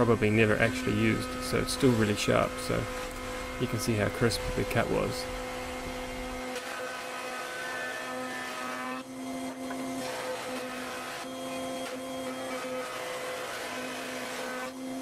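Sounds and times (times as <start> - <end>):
dust extraction: 0.0 - 15.0
router cutting wood: 0.0 - 15.0.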